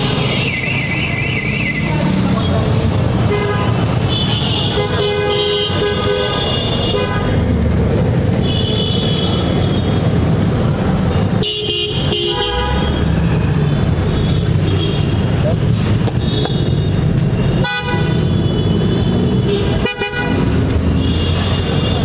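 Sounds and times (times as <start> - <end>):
passing vehicles rumble: 0.0 - 22.0
vehicle horns honking: 3.2 - 7.4, 8.4 - 10.1, 11.2 - 13.2, 16.2 - 22.0.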